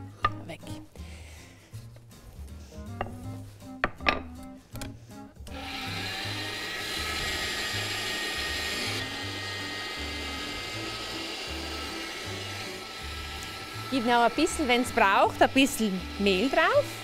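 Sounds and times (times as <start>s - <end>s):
pasta machine motor whining: 5.4s - 17.0s.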